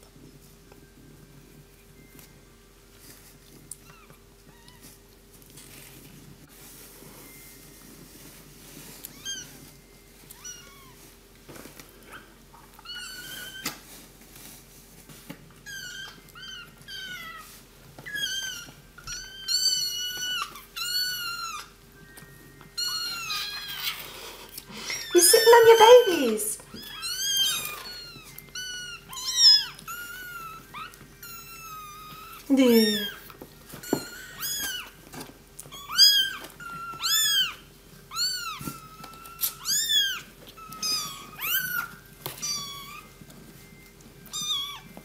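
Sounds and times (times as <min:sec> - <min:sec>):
kittens mewing: 0:22.8 - 0:33.2.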